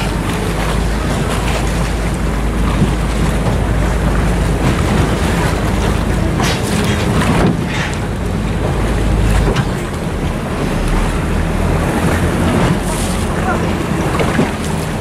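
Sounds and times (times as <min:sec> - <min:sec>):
steady low rumble: 0:00.0 - 0:15.0
water rushing past: 0:00.0 - 0:15.0
wind buffeting microphone: 0:00.0 - 0:15.0.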